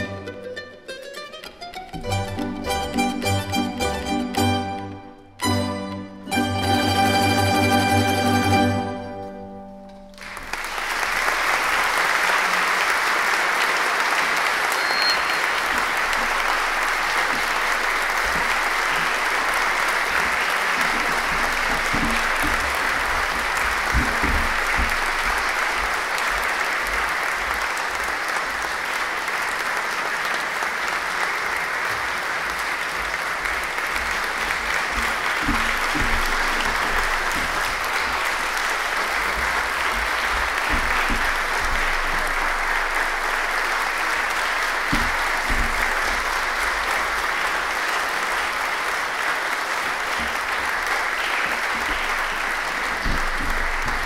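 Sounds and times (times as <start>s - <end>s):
audience applauding: 0.0s - 54.0s.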